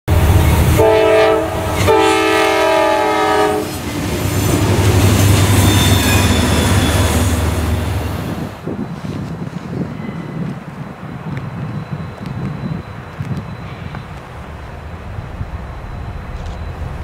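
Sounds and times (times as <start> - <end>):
rumble of passing train: 0.1 - 17.0
locomotive air horn blasts: 0.6 - 3.8.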